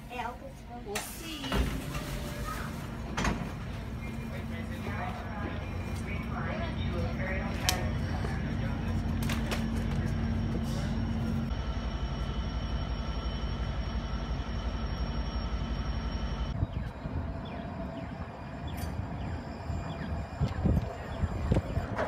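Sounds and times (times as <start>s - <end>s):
diesel train rumbling: 0.0s - 22.0s
light-rail trolley rolling on track: 0.0s - 22.0s
whining tones: 4.6s - 22.0s.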